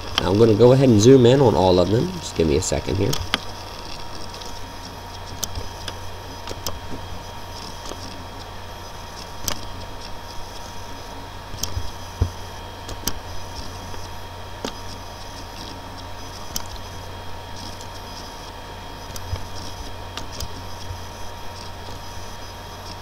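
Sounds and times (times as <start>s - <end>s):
electrical hum and hiss: 0.0s - 23.0s
computer mouse clicking: 9.2s - 9.7s, 19.1s - 20.6s.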